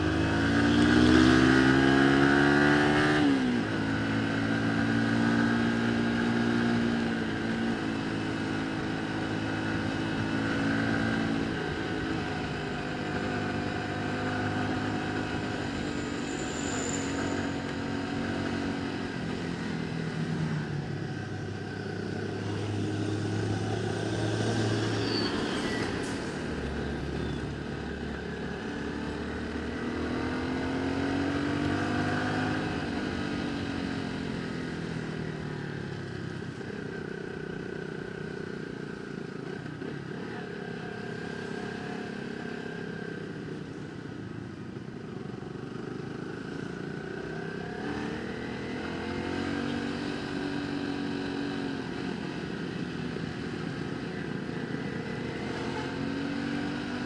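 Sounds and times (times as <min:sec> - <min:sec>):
motorcycle engine revving: 0:00.0 - 0:16.4, 0:28.0 - 0:35.5, 0:46.0 - 0:57.0.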